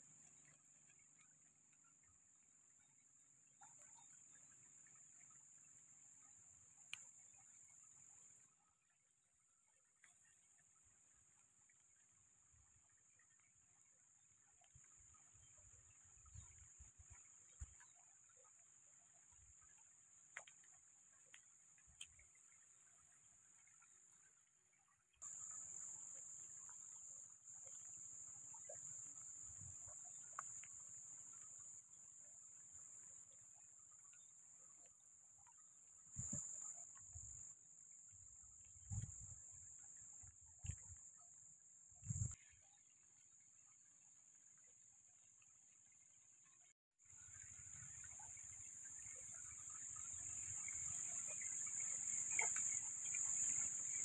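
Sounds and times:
high-pitched insect chorus: 25.2s - 41.3s, 47.1s - 54.0s.

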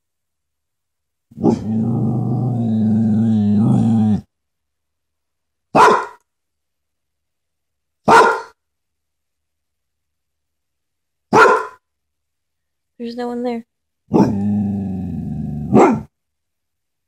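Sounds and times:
dog growling low: 1.3s - 4.3s, 14.1s - 16.0s
dog barking: 5.7s - 6.2s, 8.0s - 8.6s, 11.3s - 11.8s, 14.1s - 14.4s, 15.7s - 16.1s.

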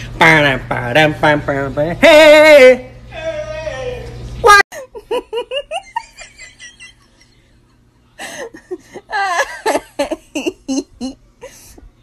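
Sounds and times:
woman laughing: 4.7s - 7.5s, 8.2s - 11.8s.

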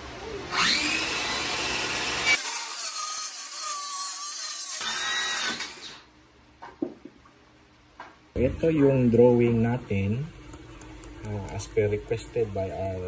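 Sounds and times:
saw blade cutting wood: 0.6s - 6.0s.

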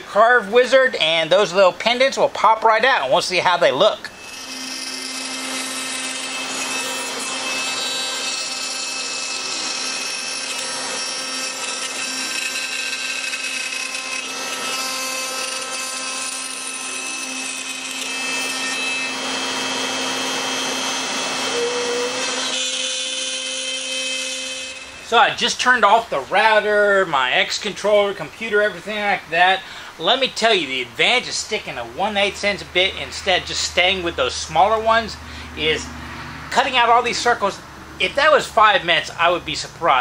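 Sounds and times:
router high whine: 4.0s - 26.7s
rasping cutting of wood: 4.2s - 24.9s.

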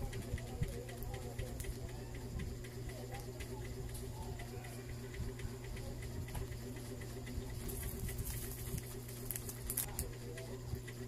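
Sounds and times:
low steady hum: 0.0s - 11.0s
foil sachet crinkling: 7.7s - 10.0s.

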